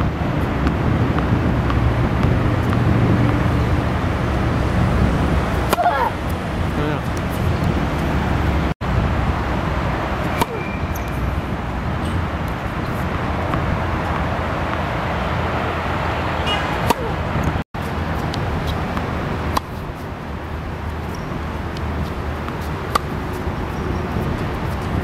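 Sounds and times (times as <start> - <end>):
distant traffic rumble: 0.0 - 25.0
tennis racket hitting ball: 5.5 - 6.3, 10.2 - 11.1, 16.5 - 17.5, 18.1 - 20.1, 20.9 - 25.0.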